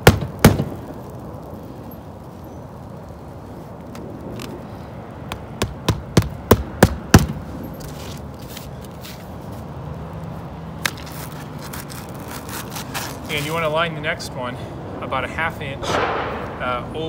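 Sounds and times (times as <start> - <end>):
hammer striking roofing nails: 0.0 - 0.8, 5.3 - 7.4.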